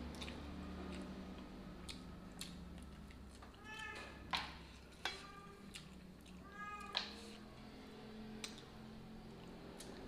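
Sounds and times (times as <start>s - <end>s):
mouth eating with lip smacks: 0.0s - 3.6s
cat meowing: 3.6s - 4.3s, 6.4s - 7.2s.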